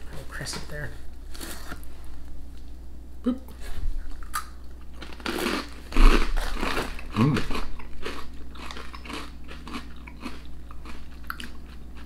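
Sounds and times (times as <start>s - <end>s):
crunchy snacks being chewed: 4.2s - 12.0s.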